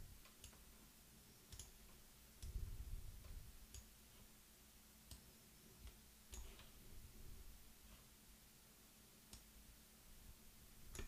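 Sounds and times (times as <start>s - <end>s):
low steady hum: 0.0s - 11.0s
computer mouse clicks: 0.2s - 0.7s, 1.4s - 2.6s, 5.1s - 6.8s.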